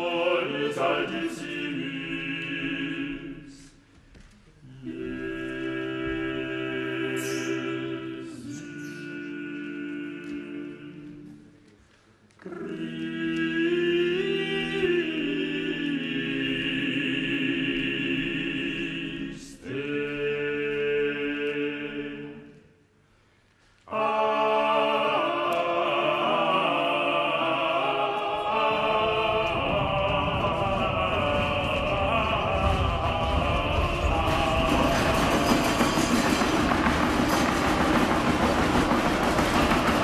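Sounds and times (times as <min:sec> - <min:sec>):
choir singing polyphony: 0:00.0 - 0:03.9, 0:04.6 - 0:11.6, 0:12.4 - 0:22.9, 0:23.8 - 0:40.0
low rumble: 0:28.4 - 0:39.3.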